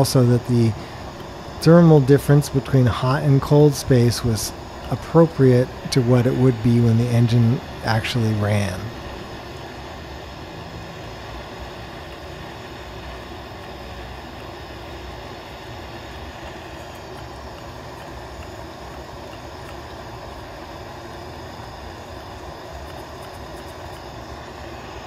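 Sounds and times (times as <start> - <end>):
propane torch hissing roar: 0.0 - 25.0.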